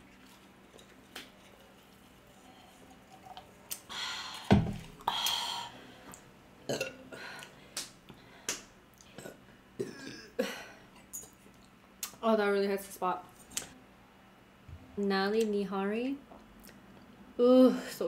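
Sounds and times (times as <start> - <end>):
person burping loudly: 6.7 - 7.2, 9.2 - 10.6.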